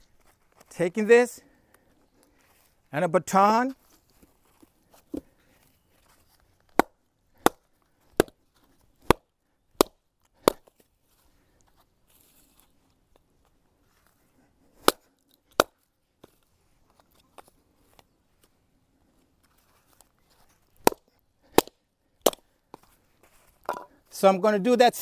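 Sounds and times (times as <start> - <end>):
baton striking knife spine: 9.8 - 10.7.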